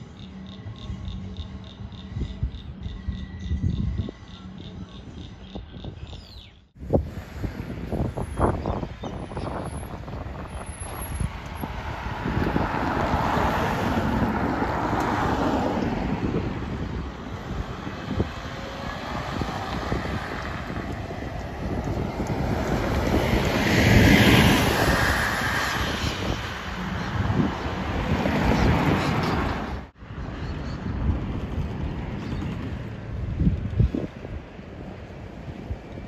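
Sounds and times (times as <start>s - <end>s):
wind buffeting microphone: 1.7s - 36.0s.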